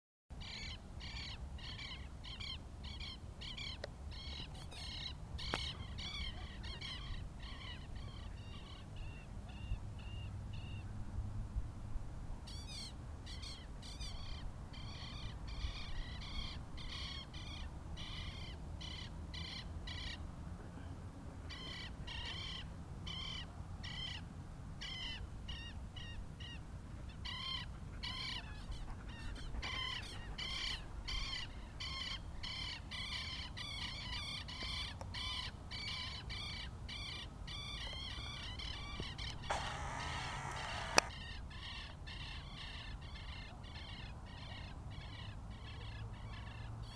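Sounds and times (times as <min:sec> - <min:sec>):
short high bird calls: 0:39.5 - 0:41.1.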